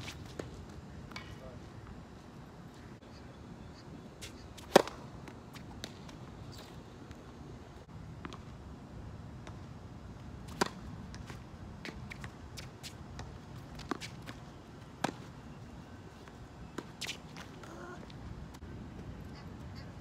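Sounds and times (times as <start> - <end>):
tennis ball bouncing: 4.6 - 6.0
rackets striking tennis ball: 4.6 - 6.2.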